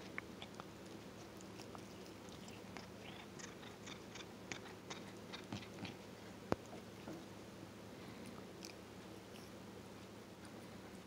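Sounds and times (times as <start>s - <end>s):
faint low hum: 0.0s - 11.0s
cat licking its fur: 0.4s - 7.0s.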